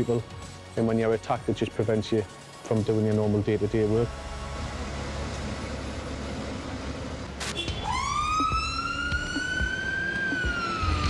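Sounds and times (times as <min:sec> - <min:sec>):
low engine rumble: 0:03.5 - 0:09.5
fire engine siren wailing: 0:07.6 - 0:11.0.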